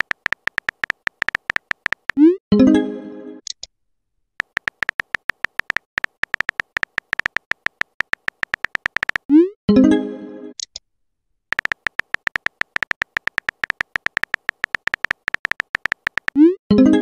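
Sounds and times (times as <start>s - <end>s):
phone keyboard key clicks: 0.0s - 2.2s, 4.4s - 9.3s, 11.5s - 16.4s.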